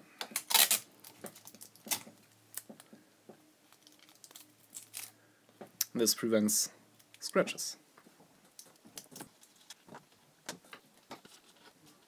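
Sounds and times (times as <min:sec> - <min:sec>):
tape rustling on pliers: 0:00.2 - 0:02.9, 0:03.7 - 0:05.2, 0:08.4 - 0:12.0.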